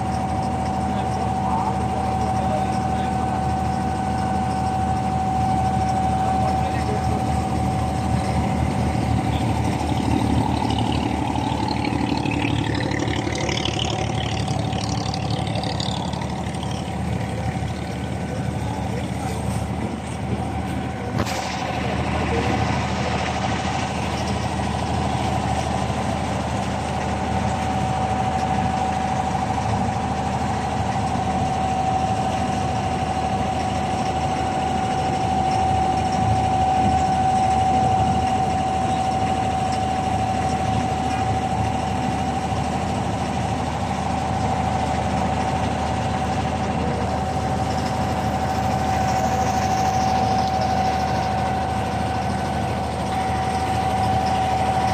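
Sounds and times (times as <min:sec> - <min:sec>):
boat diesel engine running: 0:00.0 - 0:54.9
constant whine: 0:00.0 - 0:54.9.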